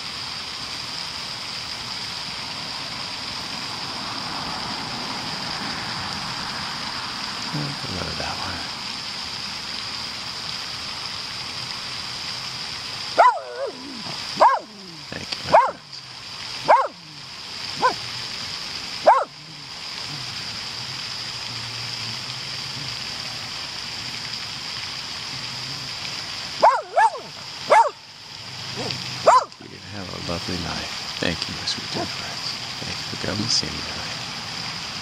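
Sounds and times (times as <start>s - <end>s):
steady hiss: 0.0s - 35.0s
dog barking: 13.2s - 13.8s, 14.4s - 14.8s, 15.4s - 15.8s, 16.6s - 17.0s, 17.8s - 18.0s, 19.0s - 19.4s, 26.6s - 28.0s, 29.2s - 29.5s.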